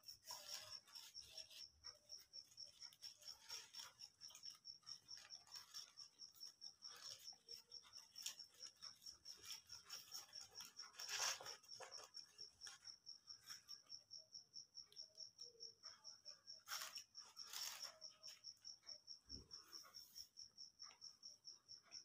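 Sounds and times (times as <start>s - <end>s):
paper wrapping rustling: 0.0s - 13.9s, 16.6s - 18.4s
cricket chirping: 0.0s - 22.0s.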